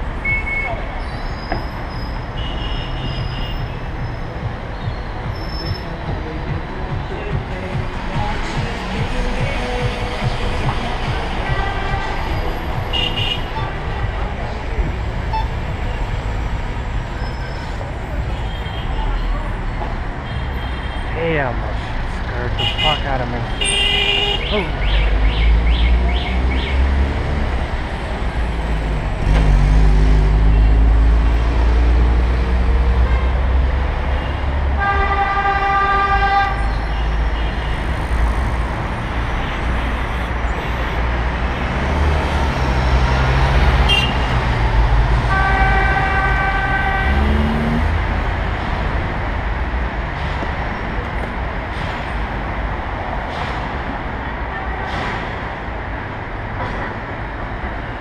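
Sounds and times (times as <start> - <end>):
road traffic: 0.0 - 58.0
vehicle horn blasts: 22.6 - 24.6, 34.8 - 36.7, 43.9 - 44.4, 45.3 - 47.4.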